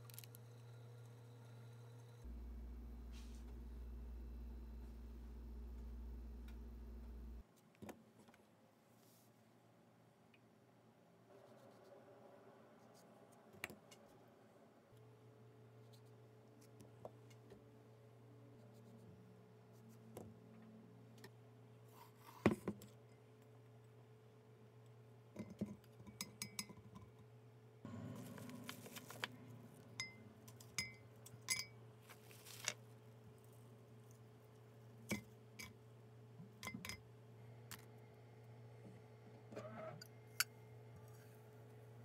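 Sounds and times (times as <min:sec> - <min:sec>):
low hum: 0:00.1 - 0:07.4, 0:27.9 - 0:31.3.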